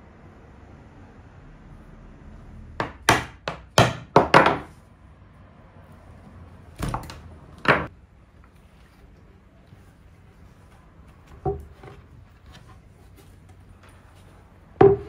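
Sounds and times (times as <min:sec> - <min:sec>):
wooden table top knocks: 0:14.8 - 0:15.0.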